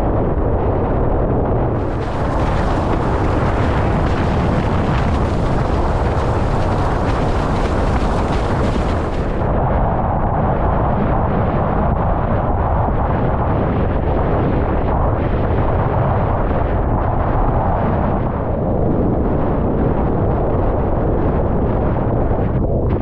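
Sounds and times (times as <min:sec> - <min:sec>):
wind buffeting microphone: 0:00.0 - 0:23.0
water rushing and splashing: 0:01.7 - 0:09.6.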